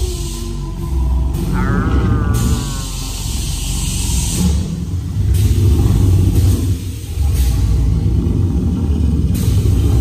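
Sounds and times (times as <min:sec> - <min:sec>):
deep uneven rumble: 0:00.8 - 0:06.6
dinosaur cry: 0:01.4 - 0:03.5.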